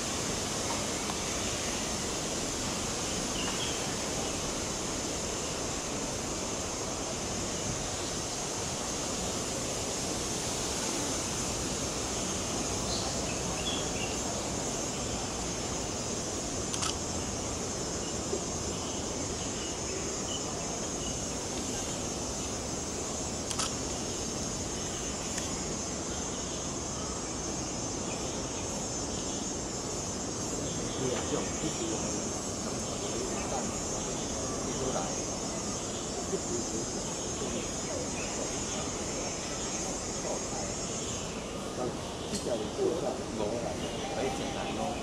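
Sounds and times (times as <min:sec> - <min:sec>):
high hiss: 0:00.0 - 0:45.0
sharp click: 0:16.7 - 0:17.0, 0:23.5 - 0:23.8.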